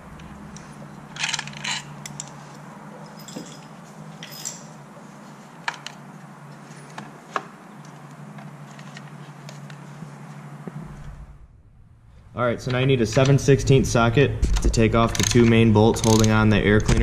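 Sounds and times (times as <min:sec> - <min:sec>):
steady low hum: 0:00.0 - 0:17.0
hand tools clinking: 0:03.0 - 0:04.8.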